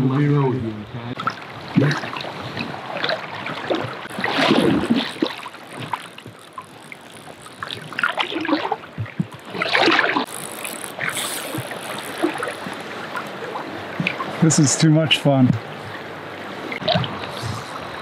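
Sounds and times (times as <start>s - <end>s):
river water splashing: 1.2s - 14.8s.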